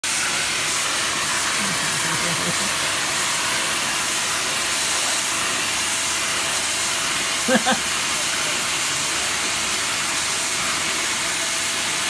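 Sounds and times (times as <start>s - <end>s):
vacuum cleaner running: 0.0s - 12.0s.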